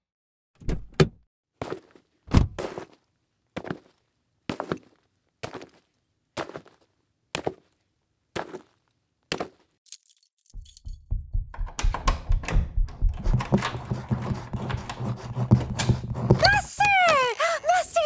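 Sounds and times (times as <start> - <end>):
keys jingling: 9.9 - 11.6
fast low thuds: 10.8 - 14.5.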